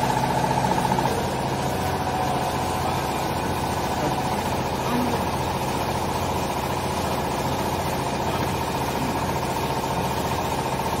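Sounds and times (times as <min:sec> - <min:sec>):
workshop machinery humming: 0:00.0 - 0:11.0.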